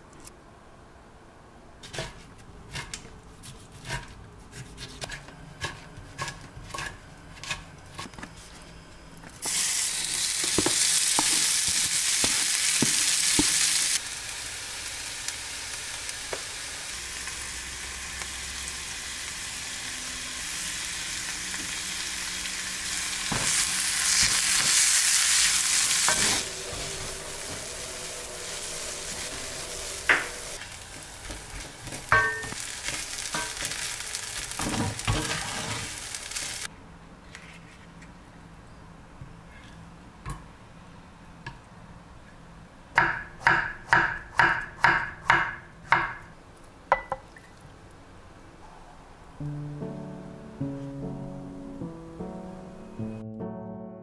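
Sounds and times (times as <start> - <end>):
food sizzling in a pan: 9.4 - 36.7
utensil knocking on pan: 31.3 - 32.6.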